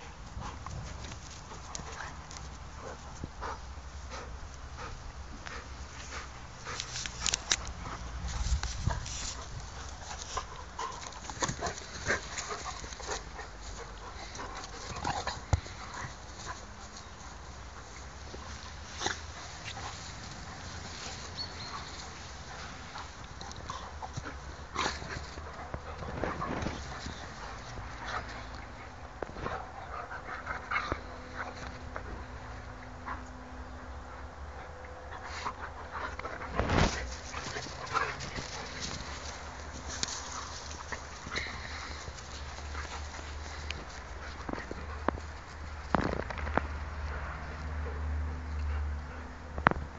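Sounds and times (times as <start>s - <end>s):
dogs vocalizing while playing: 0.0s - 45.8s
dogs scuffling: 5.4s - 33.3s, 35.4s - 47.2s.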